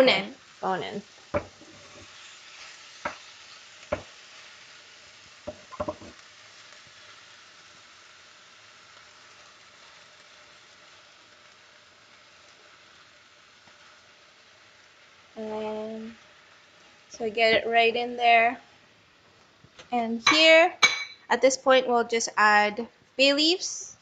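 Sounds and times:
chicken sizzling in a hot pan: 0.0s - 19.3s
utensil knocking against pan: 1.4s - 1.6s, 5.5s - 6.2s.

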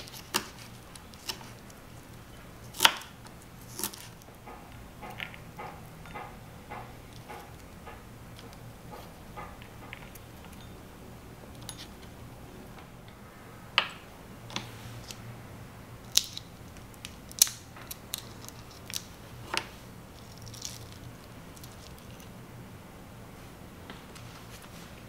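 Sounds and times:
plastic packaging clicking and crinkling: 16.1s - 22.3s.

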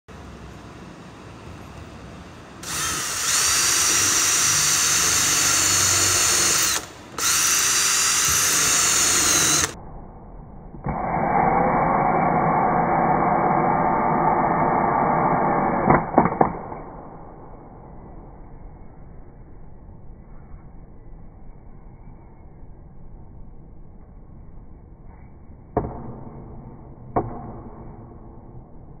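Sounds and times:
drill whining into wood: 2.6s - 9.8s.

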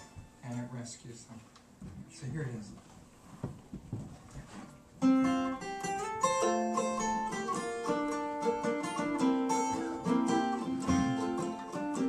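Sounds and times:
acoustic guitar picking: 0.0s - 0.6s, 4.7s - 12.0s.

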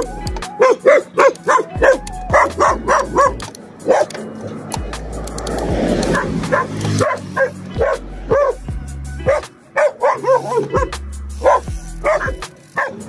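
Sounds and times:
dog barking and yipping: 0.0s - 4.4s, 6.0s - 13.0s
wind on microphone: 2.3s - 6.8s.

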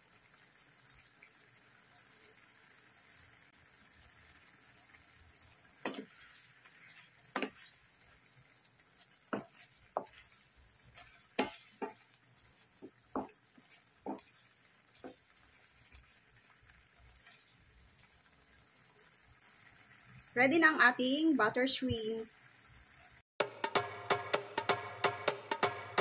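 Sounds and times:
wooden spatula knocking on pan: 5.8s - 6.2s, 7.3s - 7.7s, 9.2s - 10.4s, 11.0s - 15.3s.

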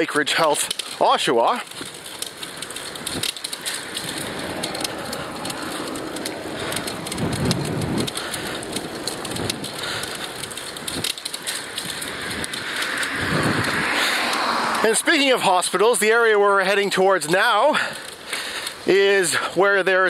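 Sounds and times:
small crackles: 0.0s - 20.0s
wind buffeting microphone: 1.7s - 15.4s.

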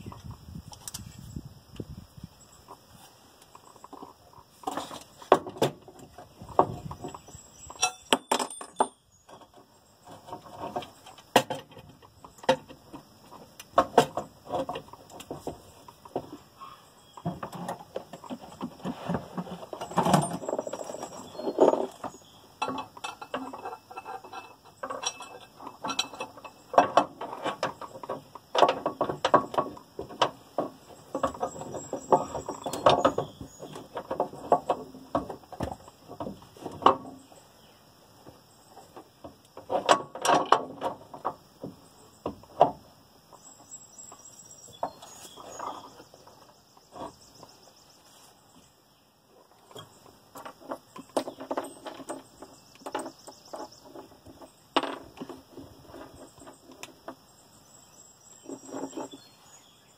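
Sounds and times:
hand tools and metal clinking: 2.6s - 37.4s, 38.3s - 42.8s, 49.4s - 57.3s.

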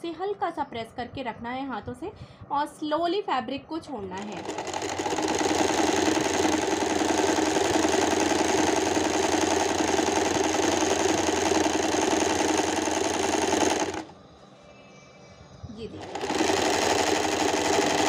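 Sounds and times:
sewing machine running: 4.2s - 14.2s, 16.0s - 18.0s.

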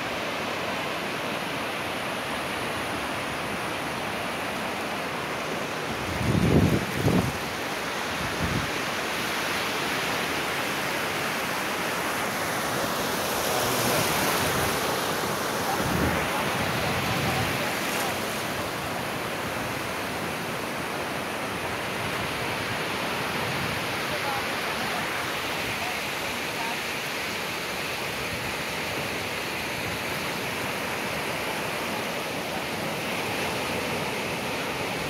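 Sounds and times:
waves breaking on beach: 0.0s - 35.0s
wind buffeting microphone: 5.9s - 8.8s.

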